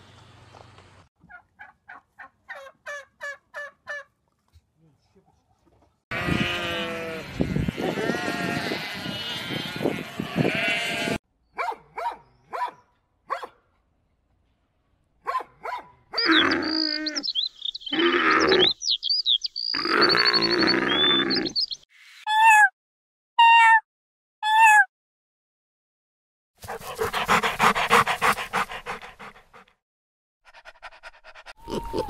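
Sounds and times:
sheep bleating: 6.1 - 11.2
llama calling with high chirps: 16.2 - 19.0, 19.7 - 21.7.

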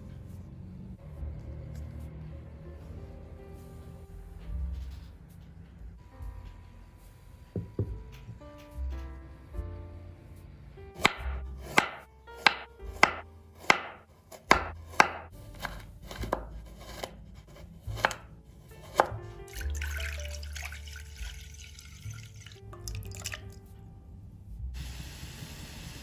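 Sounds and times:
knife chopping on wooden board: 11.0 - 19.2.

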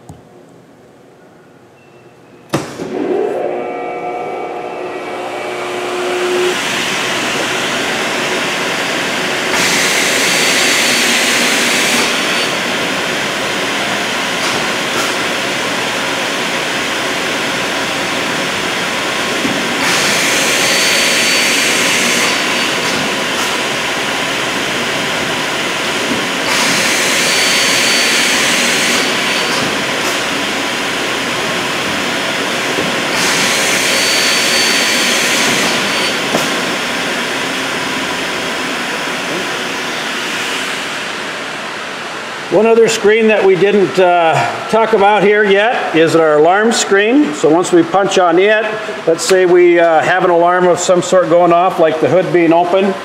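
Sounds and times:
saw blade running: 2.8 - 13.0, 17.9 - 41.1
saw cutting metal whine: 2.9 - 12.7, 19.6 - 24.8, 25.4 - 30.7, 33.1 - 39.6.

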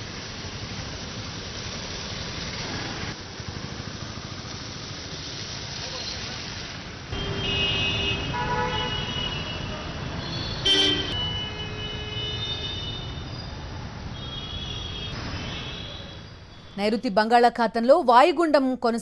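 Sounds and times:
engine and road noise: 0.0 - 18.3
vehicle horns honking: 7.1 - 13.3, 14.2 - 16.3.

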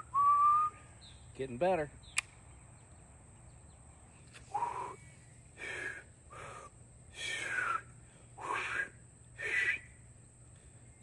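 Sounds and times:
man blowing failed whistle: 0.0 - 0.8, 4.5 - 5.0, 8.4 - 9.9.

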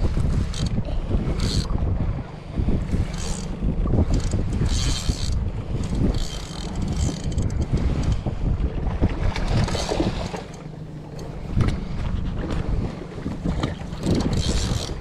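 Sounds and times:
wind buffeting microphone: 0.0 - 15.0
fishing reel whirring: 0.1 - 1.8, 2.8 - 8.3, 9.6 - 10.6, 13.7 - 15.0.

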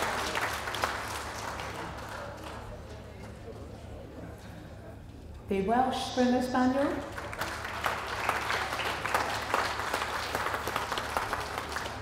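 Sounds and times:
audience applauding: 0.0 - 3.2, 7.1 - 12.0.

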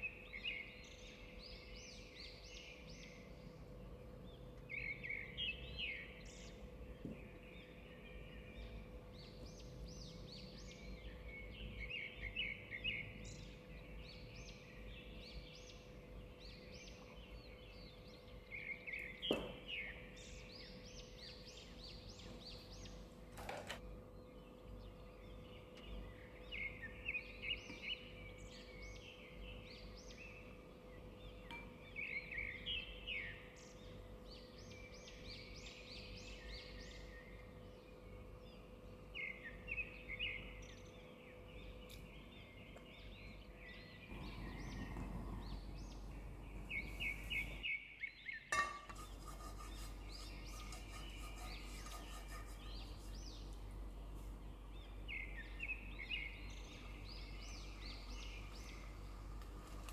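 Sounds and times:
small birds chirping: 0.0 - 59.9
low hum: 23.8 - 47.8.

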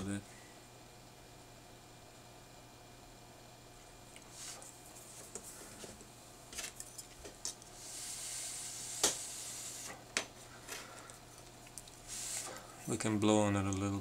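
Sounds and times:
soft airy hiss: 7.6 - 11.1, 11.9 - 13.0.

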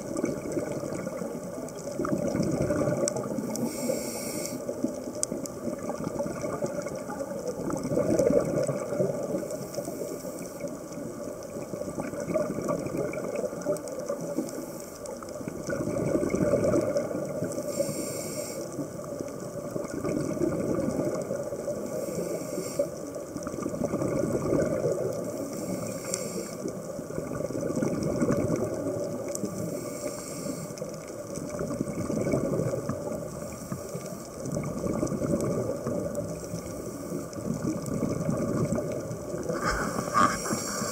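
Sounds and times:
exhaled bubbles underwater: 0.0 - 40.9
regulator hiss: 3.5 - 4.7, 17.6 - 18.8, 21.8 - 23.0, 25.4 - 26.7, 29.6 - 30.8, 39.5 - 40.9.

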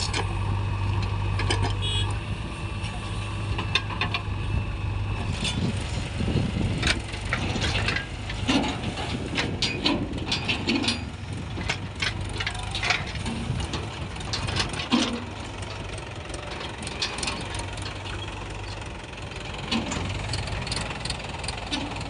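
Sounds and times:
diesel engines running: 0.0 - 22.0
sharp knocks and rattles: 6.8 - 22.0.

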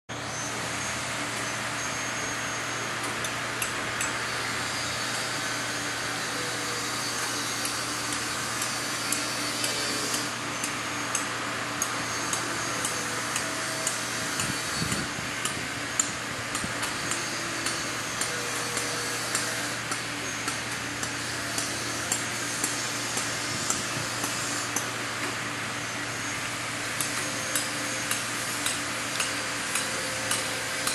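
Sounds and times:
steady background hum: 0.1 - 30.9.

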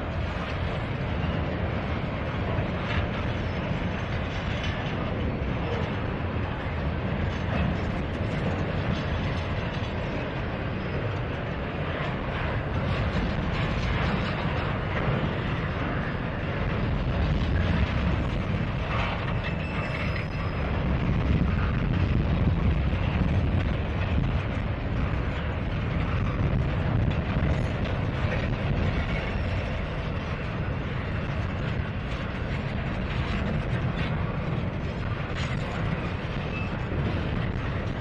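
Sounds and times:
steel wheels rumbling on rail: 0.0 - 38.0
rail cars clanking: 0.1 - 21.8.

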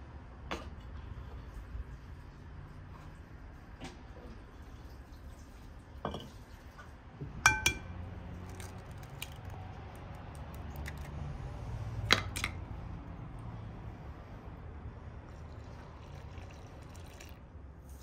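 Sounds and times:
kitchenware clinking and knocking: 7.4 - 7.9.

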